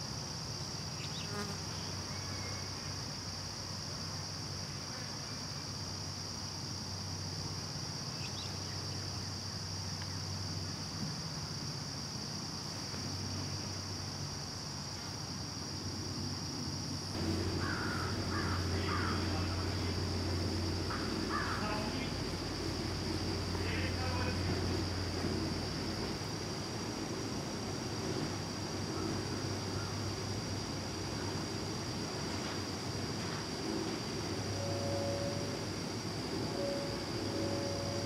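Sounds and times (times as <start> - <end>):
crickets chirping: 0.0 - 38.0
loud low rumble: 17.2 - 29.4, 33.7 - 38.0
low hum: 17.2 - 38.0
short calls: 34.3 - 38.0.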